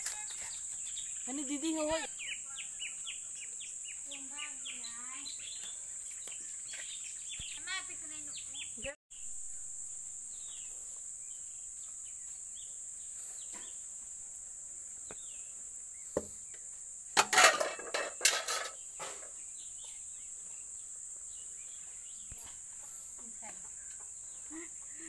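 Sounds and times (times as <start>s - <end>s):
metal cookware clanking: 17.2s - 19.3s.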